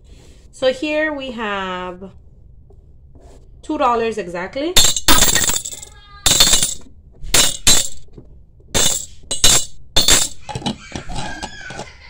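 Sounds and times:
coins clinking into glass jar: 4.8 - 8.0, 8.8 - 11.4.

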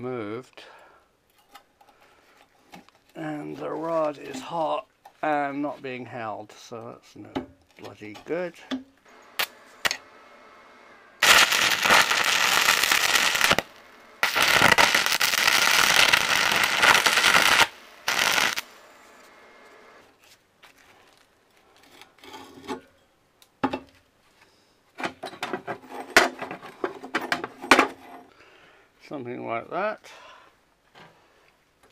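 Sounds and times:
welding arc burning: 9.3 - 10.0, 11.2 - 18.9.

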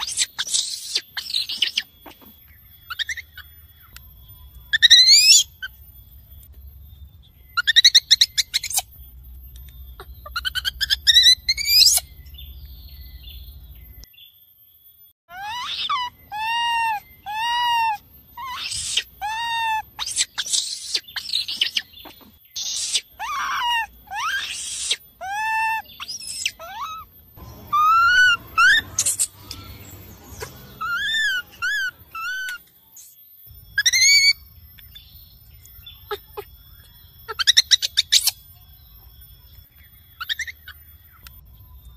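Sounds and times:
baby monkey harsh shrieks: 0.0 - 3.5, 4.7 - 5.8, 7.6 - 9.0, 10.0 - 12.1, 15.3 - 32.6, 33.8 - 34.4, 37.3 - 38.4, 40.2 - 40.9
baby monkey squealing: 0.0 - 3.9, 4.7 - 5.8, 7.6 - 9.0, 9.9 - 12.2, 15.3 - 32.6, 33.8 - 35.0, 36.0 - 36.5, 37.2 - 38.5, 40.2 - 40.9.

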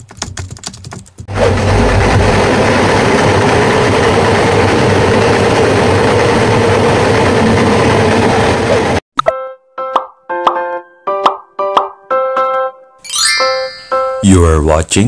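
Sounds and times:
test bench machine running: 1.3 - 9.0.

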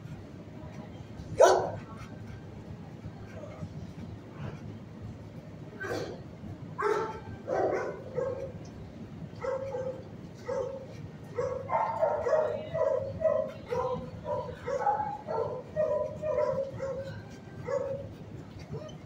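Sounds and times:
dogs barking: 1.4 - 2.1, 5.8 - 6.2, 6.8 - 8.7, 9.4 - 19.0.

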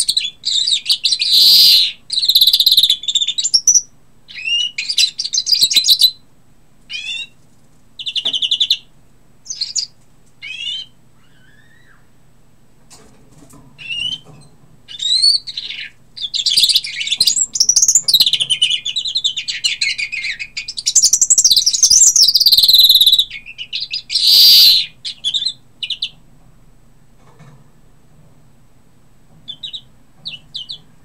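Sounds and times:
finch singing: 0.0 - 6.2, 6.9 - 7.4, 8.0 - 8.9, 9.5 - 12.1, 13.8 - 26.2, 29.5 - 30.9.

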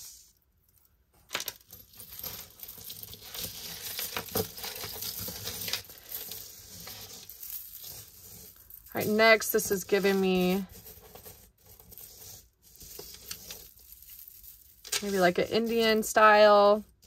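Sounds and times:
metal chains and beads jingling: 1.6 - 12.1, 12.8 - 16.8.

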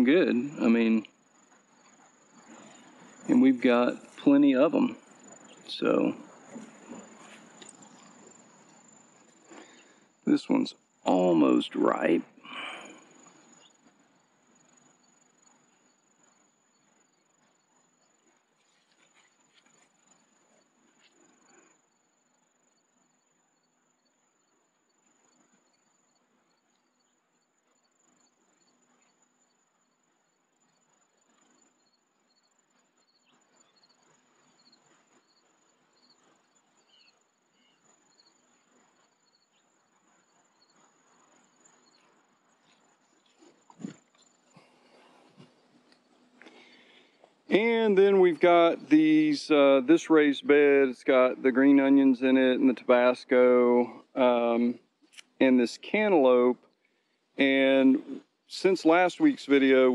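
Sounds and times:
high-pitched insect trill: 0.0 - 45.2
cricket chirping: 0.0 - 59.9.

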